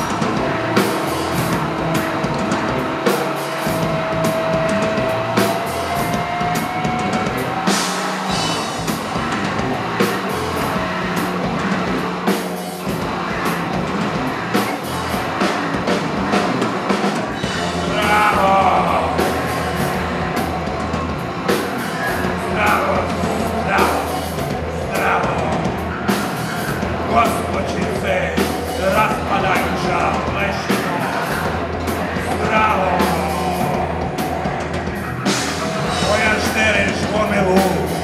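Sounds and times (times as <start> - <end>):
drum hits: 0.0 - 38.0
experimental band music: 0.0 - 38.0
low synthesizer tones: 0.0 - 38.0.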